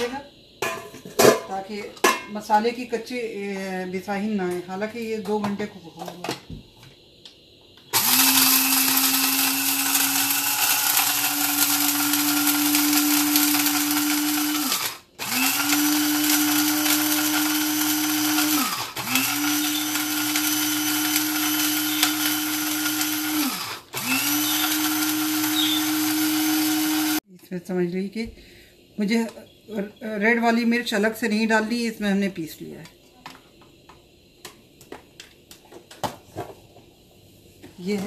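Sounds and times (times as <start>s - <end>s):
electric spice grinder running: 7.9s - 27.2s.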